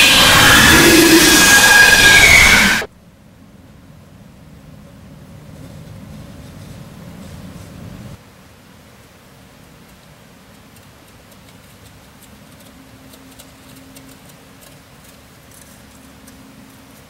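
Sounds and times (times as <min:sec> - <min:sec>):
faint ticks and clicks: 0:09.6 - 0:17.0.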